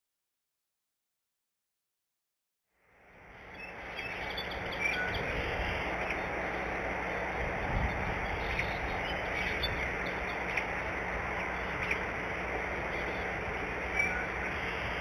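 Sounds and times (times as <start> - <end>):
bird chirp: 3.4 - 15.0.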